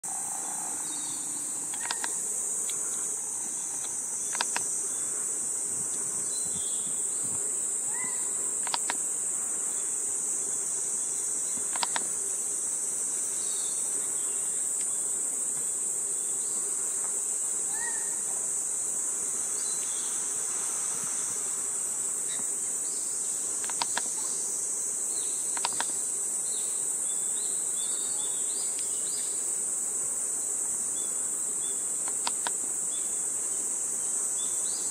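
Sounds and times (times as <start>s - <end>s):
insect chorus drone: 0.0s - 34.9s
sharp clicks: 1.7s - 2.8s, 3.7s - 4.7s, 8.6s - 9.0s, 11.7s - 12.1s, 23.6s - 24.2s, 25.5s - 26.0s, 32.0s - 32.6s.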